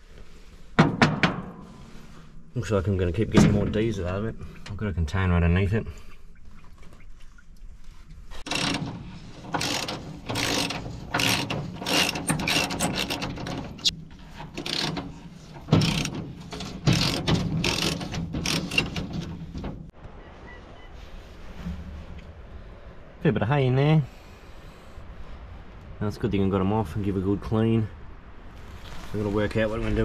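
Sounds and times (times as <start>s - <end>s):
socket wrench ratcheting: 8.5s - 19.4s.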